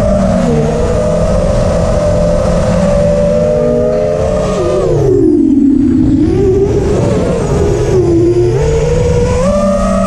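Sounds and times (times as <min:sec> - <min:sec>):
drone motors whining: 0:00.0 - 0:10.0
rushing noise: 0:00.0 - 0:10.0.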